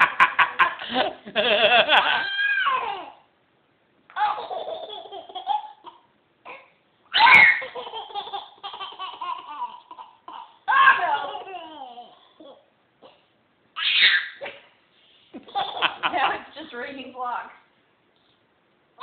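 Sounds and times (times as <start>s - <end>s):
baby laughing: 1.8s - 3.2s, 4.1s - 13.2s, 15.4s - 16.4s.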